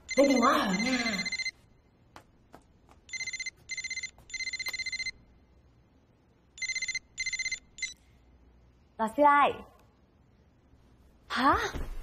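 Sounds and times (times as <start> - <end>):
phone ringtone trilling: 0.1 - 1.6, 3.1 - 5.2, 6.6 - 8.0.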